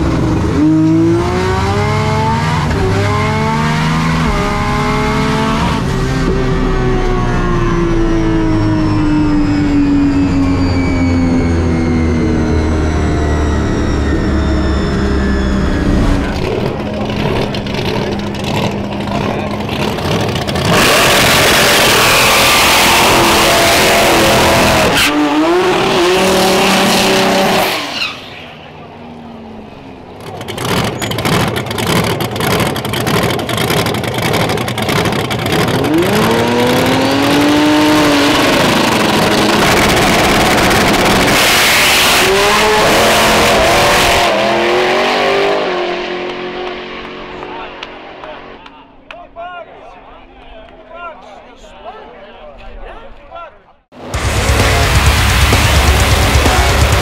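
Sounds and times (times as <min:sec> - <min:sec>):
cars accelerating away: 0:00.0 - 0:48.6, 0:54.0 - 0:57.0
car engines revving: 0:00.0 - 0:48.7, 0:54.0 - 0:57.0
engine pops and crackles: 0:16.2 - 0:21.6, 0:30.2 - 0:36.3, 0:54.0 - 0:57.0.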